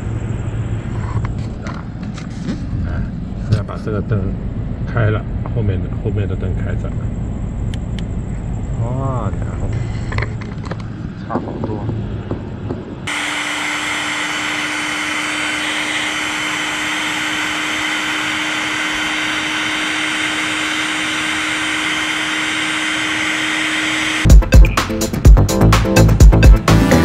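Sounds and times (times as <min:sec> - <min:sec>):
heat gun blowing: 0:13.1 - 0:24.3.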